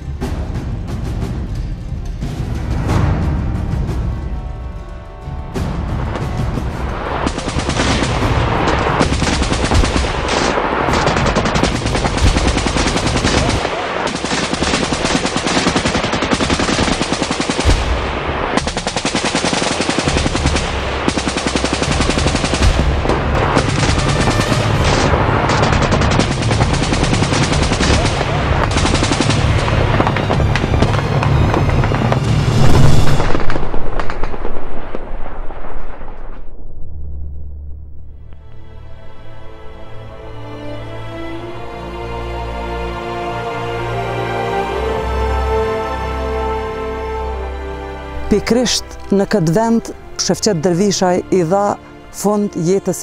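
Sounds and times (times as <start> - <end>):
background music: 0.0 - 34.0, 38.1 - 53.0
automatic gunfire: 7.2 - 18.0, 18.6 - 30.2.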